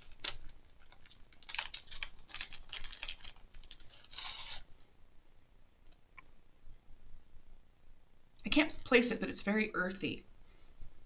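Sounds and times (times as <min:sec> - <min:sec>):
packaging rustle: 0:00.0 - 0:04.6
plastic crinkling: 0:00.0 - 0:04.6.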